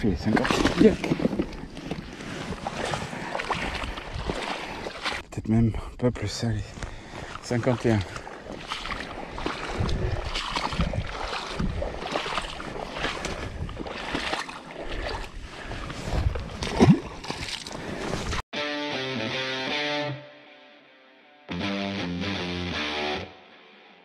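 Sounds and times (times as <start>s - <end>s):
water sloshing and splashing: 0.0s - 5.3s, 6.7s - 18.4s
guitar music: 18.5s - 24.0s.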